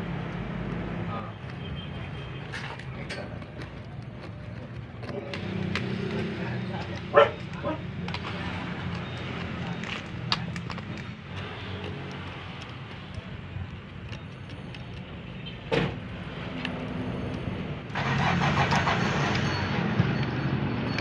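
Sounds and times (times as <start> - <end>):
engine running: 0.0 - 20.2.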